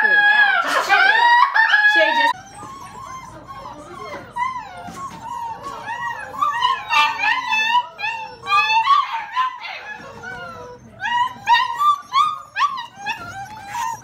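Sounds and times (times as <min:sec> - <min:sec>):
puppies whining and yelping: 0:00.0 - 0:14.0.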